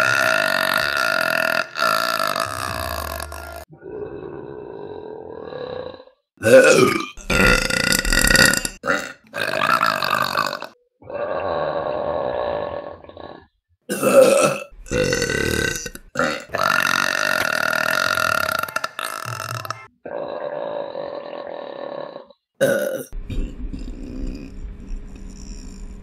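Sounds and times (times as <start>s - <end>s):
woman burping: 6.4s - 10.8s, 13.9s - 19.9s, 22.6s - 24.5s.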